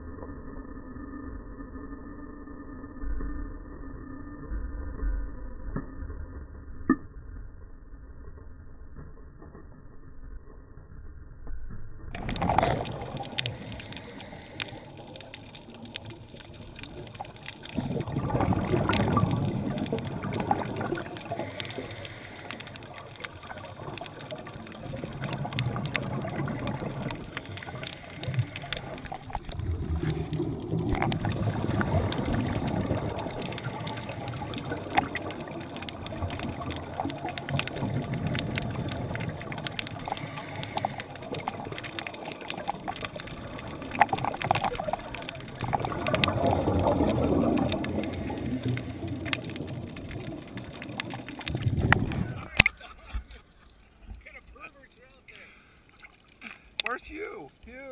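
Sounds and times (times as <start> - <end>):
underwater exhaled bubbles: 12.1 - 54.2
sharp clicks: 12.2 - 53.8, 56.0 - 57.3.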